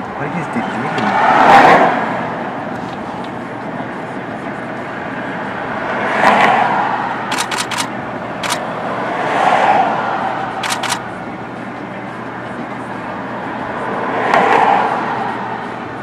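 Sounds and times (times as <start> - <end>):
cars passing by: 0.0 - 16.0
quick sharp clicks: 7.3 - 8.6, 10.6 - 11.0.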